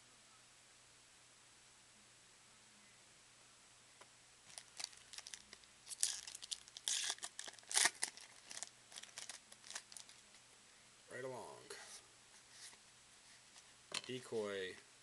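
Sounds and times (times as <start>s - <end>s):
foil wrapper crinkling and tearing: 4.5s - 10.2s.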